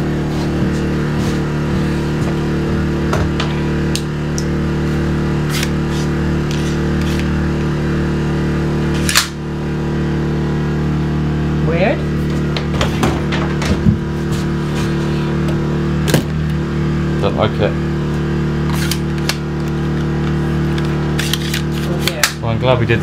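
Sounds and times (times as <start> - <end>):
generator engine humming: 0.0 - 23.0
nail gun snap: 9.0 - 9.4.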